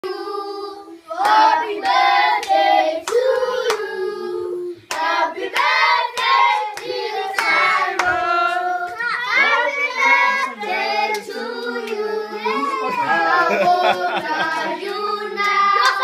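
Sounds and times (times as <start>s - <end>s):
group singing a birthday tune: 0.0s - 16.0s
hand claps keeping time: 15.4s - 16.0s.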